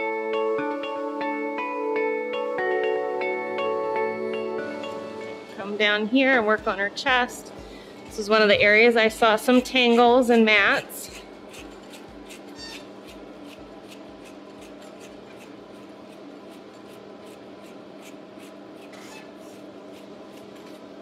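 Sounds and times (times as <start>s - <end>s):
dog dryer humming: 3.2s - 14.5s.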